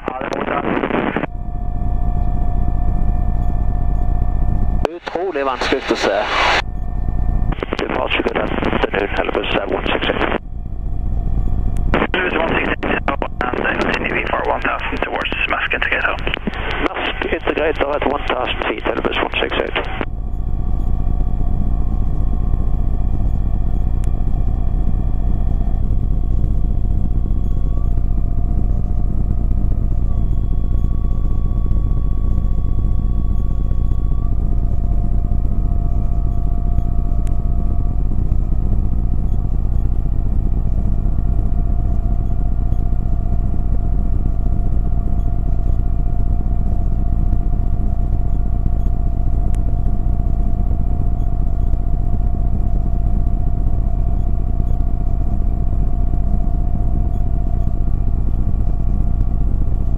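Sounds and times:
light aircraft engine droning: 0:00.0 - 0:59.9.

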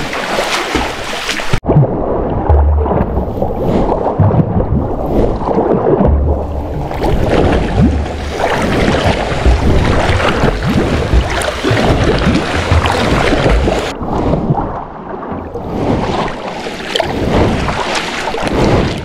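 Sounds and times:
water splashing and lapping: 0:00.0 - 0:19.0
low buffeting rumble: 0:06.0 - 0:13.9.

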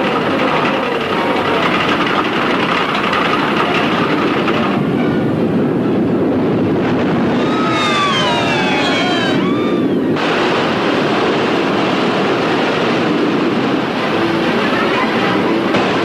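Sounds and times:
roller coaster cars on track: 0:00.0 - 0:16.0
high sliding tones: 0:07.4 - 0:10.1.

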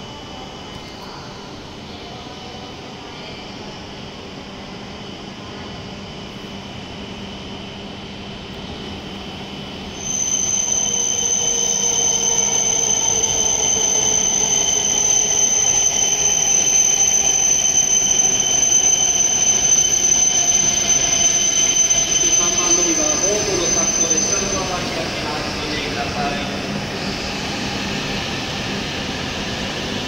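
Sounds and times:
train whines sliding down: 0:06.6 - 0:30.0
rush of passing train cars: 0:09.8 - 0:30.0
high-pitched brake squeal: 0:09.9 - 0:29.8.

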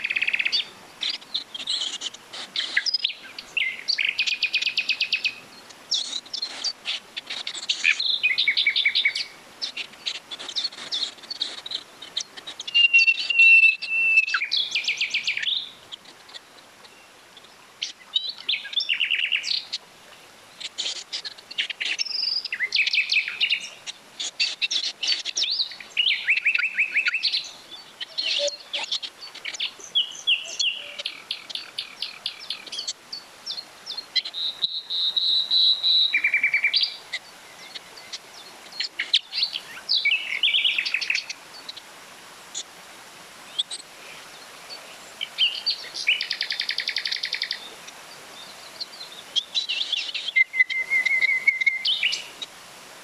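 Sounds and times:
songbirds singing: 0:00.0 - 0:52.7
running stream water: 0:00.0 - 0:53.0.

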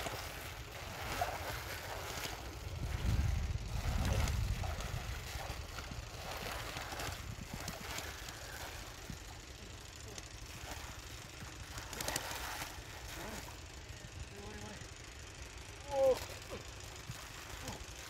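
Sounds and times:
water sloshing: 0:00.0 - 0:13.6
mud squelching: 0:00.0 - 0:14.0
wind rumbling on microphone: 0:01.2 - 0:09.4.

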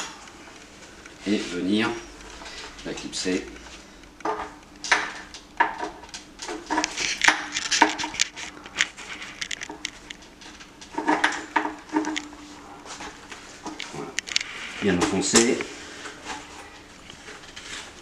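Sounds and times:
stroller frame parts clicking: 0:04.2 - 0:12.3.

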